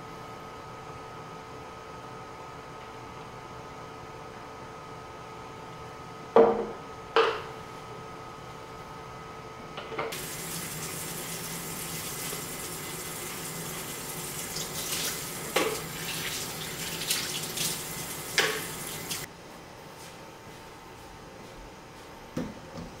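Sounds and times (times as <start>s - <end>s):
faucet running into sink: 10.1s - 19.3s.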